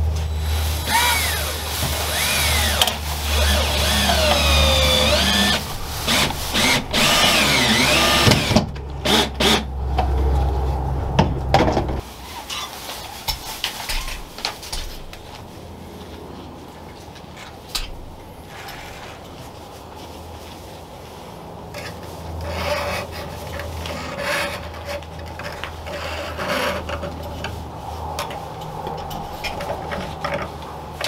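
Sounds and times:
cord rubbing and scraping on wood: 0.5 - 11.0, 18.4 - 31.0.

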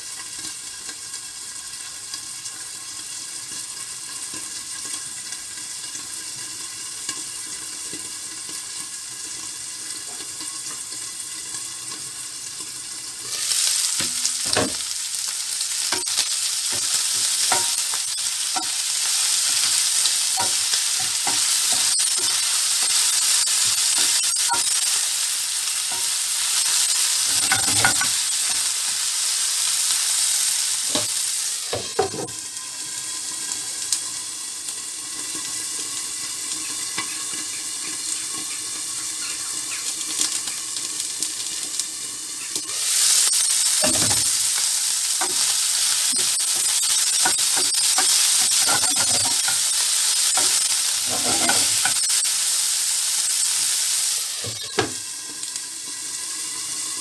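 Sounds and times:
liver sizzling in a frying pan: 0.0 - 57.0
wooden spatula scraping a pan: 46.2 - 52.2.

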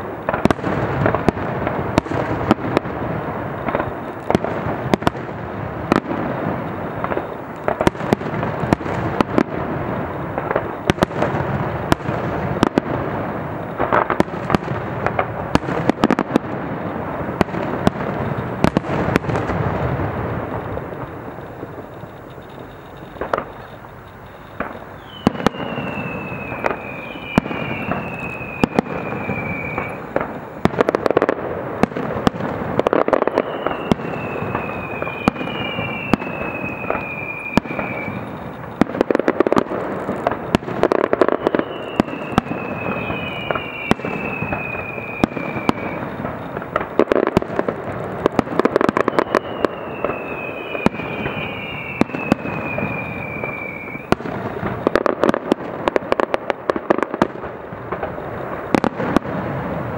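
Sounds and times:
fireworks bangs: 0.0 - 59.9
fireworks crackling: 0.0 - 59.9
long falling whistles: 18.2 - 31.1, 32.8 - 46.6, 48.7 - 55.0.

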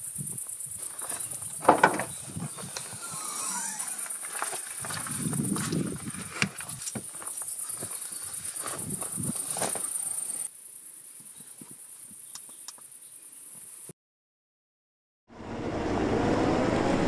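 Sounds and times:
crickets chirring: 0.0 - 13.9
rustles and knocks of movement: 0.3 - 10.5.

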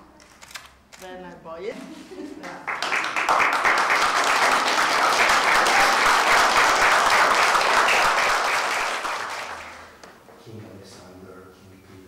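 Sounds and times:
rhythmic applause: 2.6 - 10.0.

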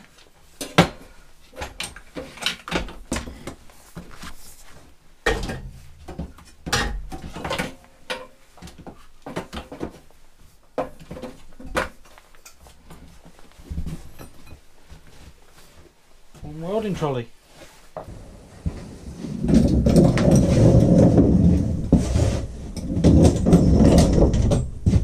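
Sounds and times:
hoses rubbing and rustling: 1.2 - 5.2, 9.8 - 25.0.

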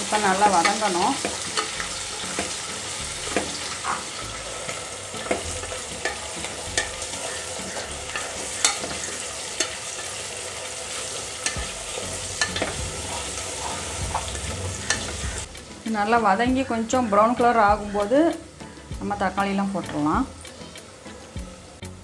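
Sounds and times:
onions sizzling in oil: 0.0 - 22.0
wooden spatula scraping pot: 11.4 - 15.5.

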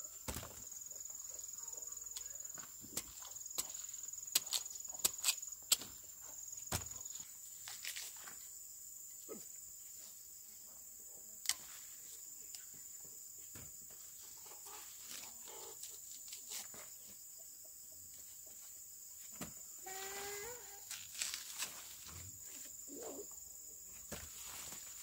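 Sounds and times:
high insect drone: 18.5 - 25.0.

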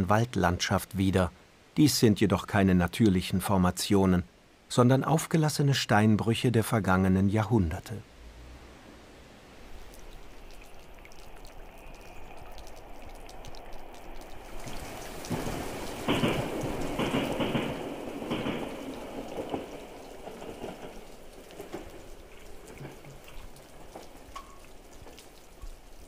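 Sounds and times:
water pattering and splashing: 9.6 - 26.0.

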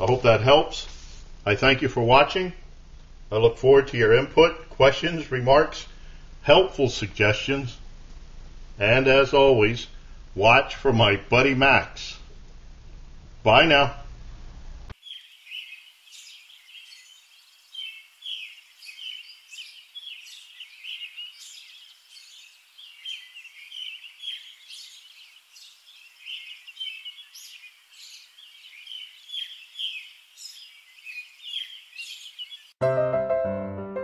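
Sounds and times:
small birds chirping: 14.9 - 32.8.

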